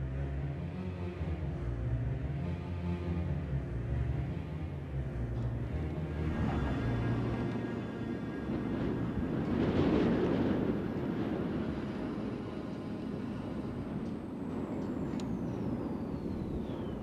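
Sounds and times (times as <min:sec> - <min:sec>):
dark rumbling ambient noise: 0:00.0 - 0:17.0
high whistle gliding down: 0:13.1 - 0:17.0.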